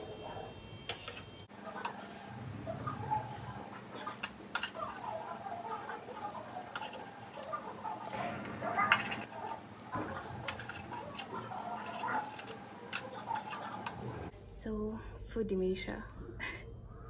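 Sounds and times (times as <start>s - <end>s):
cutlery clinking and scraping on plate: 4.2s - 14.3s.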